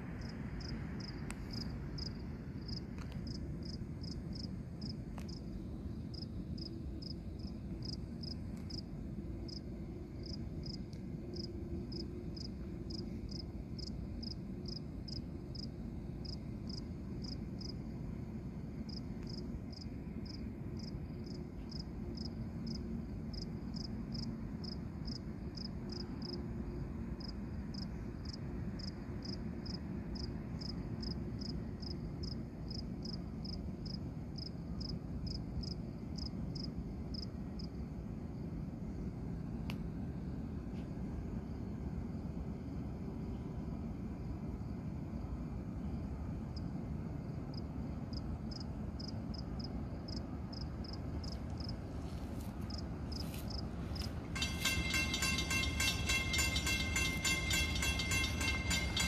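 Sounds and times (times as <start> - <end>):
low steady rumble: 0.0 - 59.0.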